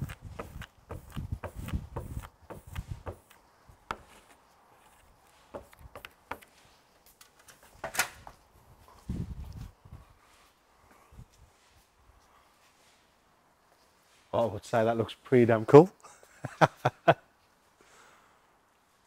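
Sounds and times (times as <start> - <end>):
hand rubbing sticker on metal: 0.0 - 6.7.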